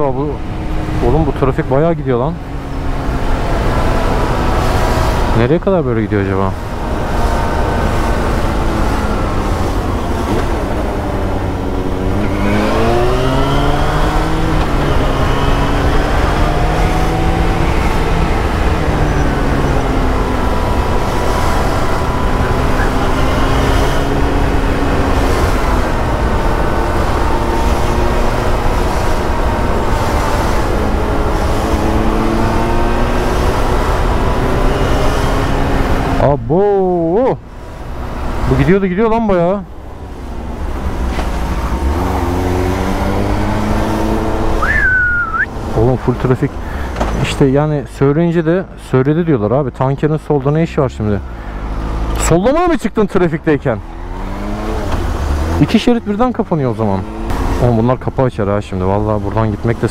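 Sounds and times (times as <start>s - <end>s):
motorcycle engine revving: 6.5s - 36.4s, 37.6s - 47.2s, 53.6s - 59.9s.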